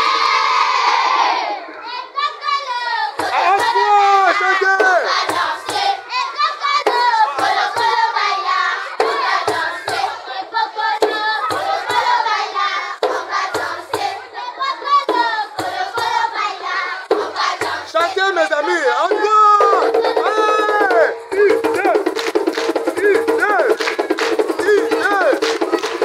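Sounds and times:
children singing: 0.0 - 22.1
hand drum beats: 3.2 - 6.0, 6.8 - 8.2, 9.0 - 10.2, 10.9 - 12.3, 13.0 - 14.2, 15.0 - 16.4, 18.9 - 26.0.

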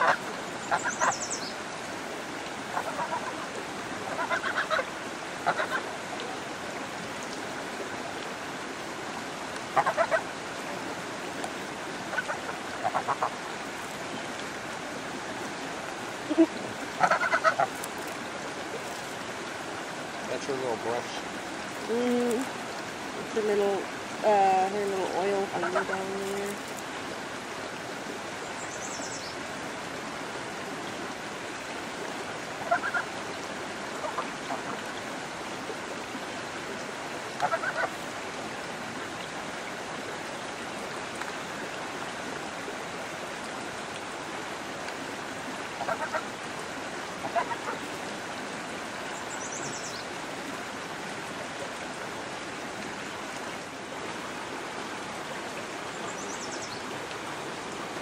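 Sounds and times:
waterfowl calls: 0.0 - 1.5, 2.7 - 5.9, 9.7 - 10.3, 12.0 - 13.5, 16.3 - 17.9, 25.4 - 26.5, 32.6 - 33.1, 33.9 - 34.9, 37.4 - 38.0, 45.8 - 46.3, 47.2 - 47.9
creek rushing: 0.0 - 58.0.

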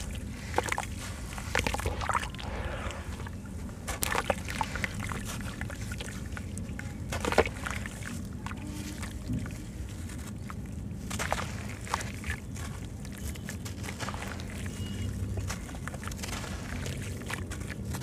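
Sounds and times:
water sloshing and splashing: 0.0 - 18.0
gritty crunches: 9.0 - 18.0.

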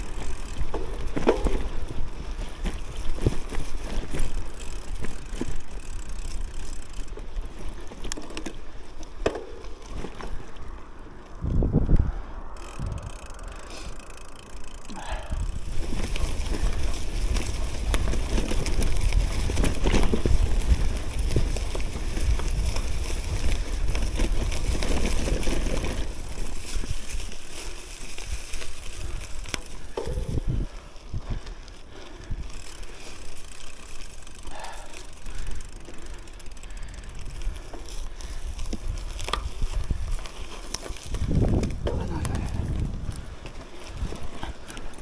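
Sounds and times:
bike clicks and rattles: 0.0 - 45.0
bike tyre noise on trail: 0.0 - 45.0
wind rumble on microphone: 9.7 - 13.7, 14.9 - 32.5, 36.8 - 45.0.

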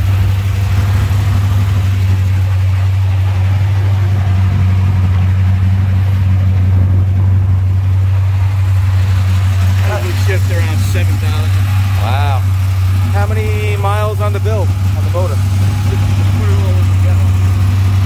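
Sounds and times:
car engine idling: 0.0 - 18.0.

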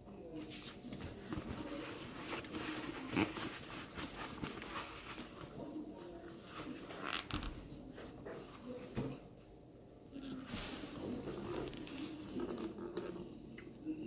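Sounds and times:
paper napkin rustling: 0.4 - 7.3, 10.3 - 12.9.

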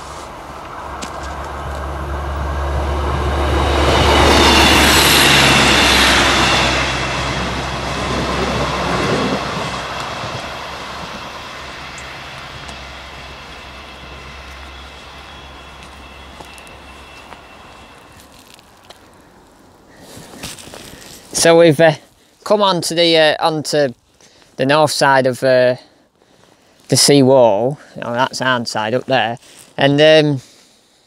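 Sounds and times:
low engine drone: 0.0 - 20.0
wheels rushing on rails: 0.0 - 21.6.

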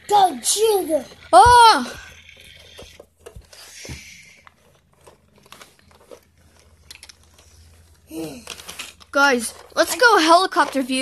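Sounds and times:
toy cars clicking and knocking: 0.0 - 11.0
soft rustling and crinkling: 2.7 - 11.0.

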